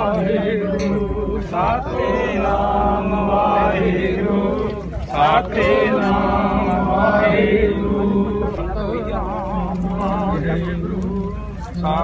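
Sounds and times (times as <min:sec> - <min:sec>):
group of voices chanting: 0:00.0 - 0:12.0
steady low hum: 0:00.0 - 0:12.0.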